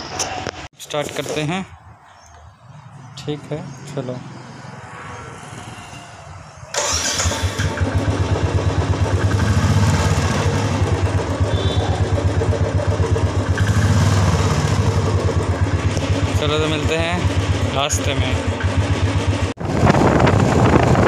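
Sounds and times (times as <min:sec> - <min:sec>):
motorcycle engine starting and idling: 0:06.7 - 0:21.0.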